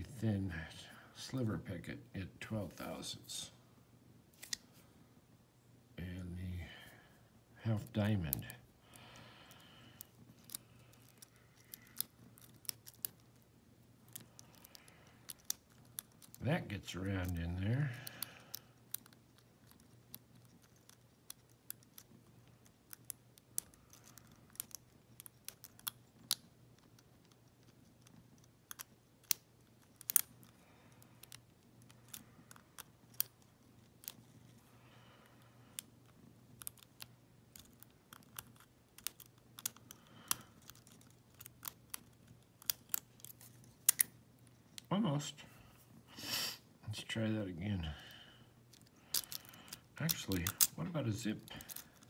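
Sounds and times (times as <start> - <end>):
faint steady hum: 0.0 - 52.0
lock pick metallic clicks: 18.0 - 30.6, 51.5 - 52.0.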